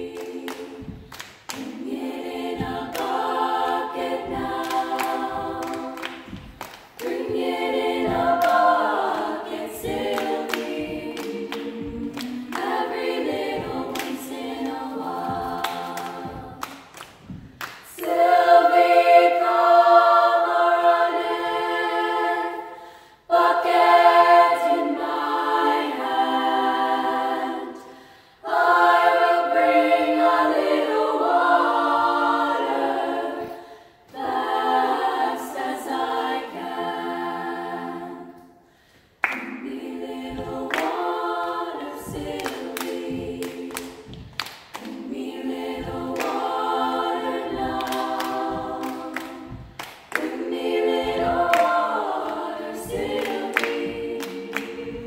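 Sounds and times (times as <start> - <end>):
children's choir singing: 0.0 - 55.0
sharp knocks: 0.5 - 18.3, 41.8 - 55.0.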